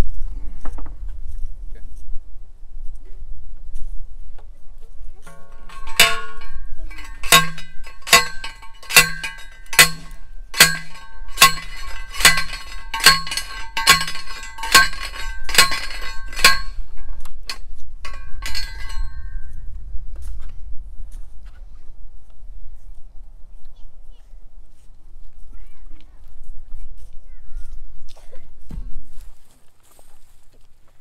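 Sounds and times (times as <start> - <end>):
post driver clanging on metal: 5.2 - 19.5.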